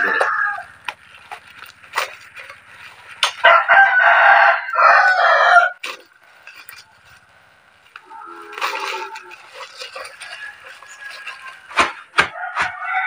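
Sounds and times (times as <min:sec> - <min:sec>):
rooster crowing: 0:00.0 - 0:00.7, 0:03.4 - 0:05.8, 0:09.9 - 0:13.0
bubble wrap crackling: 0:00.0 - 0:13.0.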